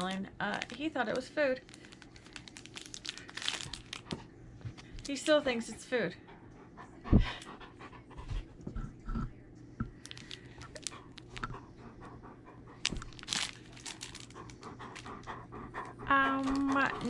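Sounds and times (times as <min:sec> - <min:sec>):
plastic packaging crinkling: 0:00.0 - 0:04.2, 0:10.0 - 0:11.5, 0:12.8 - 0:15.2, 0:16.3 - 0:17.0
dog panting: 0:05.1 - 0:08.8, 0:10.8 - 0:13.2, 0:14.0 - 0:17.0.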